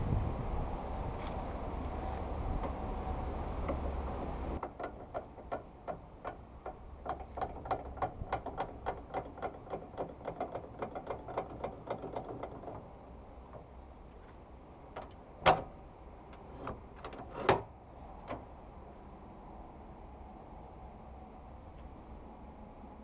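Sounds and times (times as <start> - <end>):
wind rumble on microphone: 0.0 - 5.6, 6.6 - 13.4.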